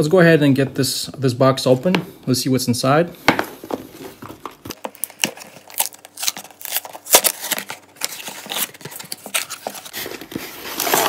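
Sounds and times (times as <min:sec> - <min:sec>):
cardboard rustle: 0:03.6 - 0:11.0
cardboard box being opened: 0:03.8 - 0:11.0.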